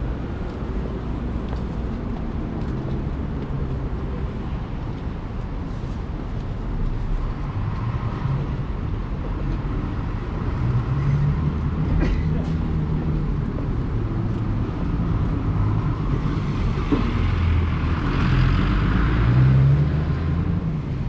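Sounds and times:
traffic rumble: 0.0s - 21.0s
vehicle engine hum: 0.0s - 21.0s.

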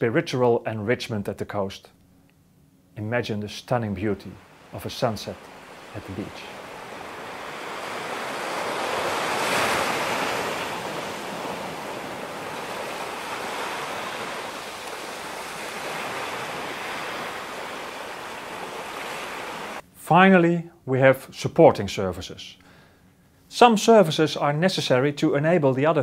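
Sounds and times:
waves washing onto sandy beach: 4.4s - 19.8s.

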